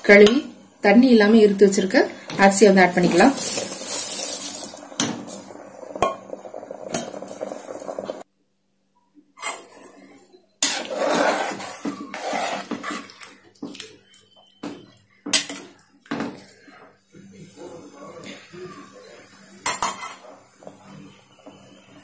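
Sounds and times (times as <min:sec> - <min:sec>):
rice poured into boiling liquid: 0:02.1 - 0:08.2
metal ladle stirring and scraping: 0:02.2 - 0:08.2, 0:10.6 - 0:13.4.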